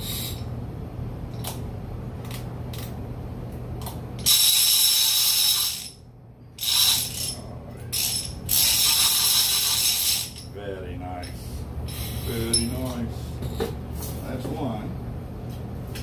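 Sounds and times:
fishing reel buzzing: 0:04.2 - 0:06.0, 0:06.6 - 0:07.4, 0:08.0 - 0:10.4
fishing reel ratchet clicking: 0:04.2 - 0:06.0, 0:06.6 - 0:07.4, 0:08.0 - 0:10.4.

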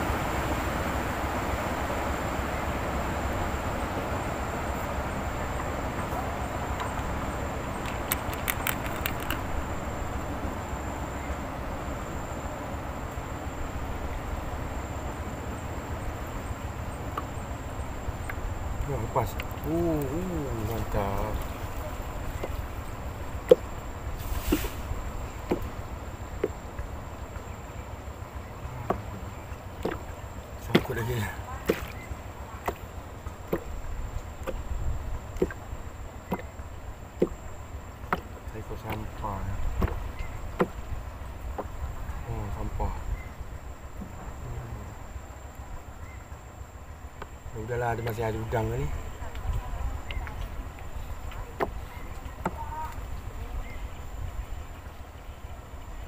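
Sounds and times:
low outdoor background noise: 0:00.0 - 0:56.0
knocks against boat hull: 0:23.4 - 0:23.8, 0:25.4 - 0:25.8, 0:26.4 - 0:26.6, 0:28.8 - 0:33.8, 0:34.4 - 0:35.6, 0:36.2 - 0:36.6, 0:37.2 - 0:37.4, 0:38.0 - 0:41.9, 0:51.3 - 0:53.0
short hiss: 0:24.2 - 0:24.9.

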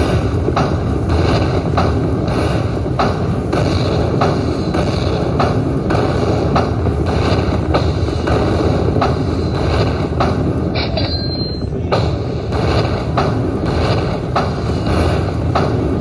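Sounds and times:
low rumble with drum beat: 0:00.0 - 0:16.0
high chime: 0:10.8 - 0:11.8.

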